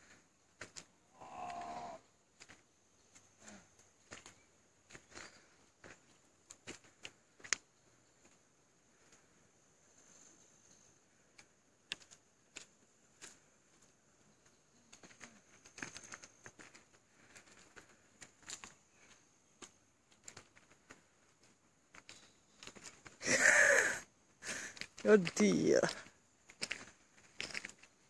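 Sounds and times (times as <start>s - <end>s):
faint steady high hiss: 0.0s - 28.0s
faint clicks and ticks: 10.7s - 23.2s.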